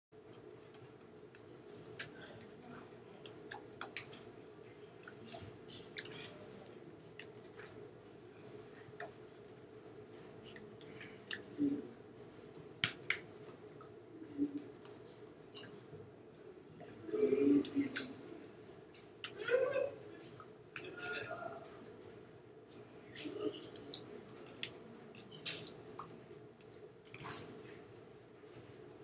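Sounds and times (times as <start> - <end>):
low room hum: 0.2 - 29.0.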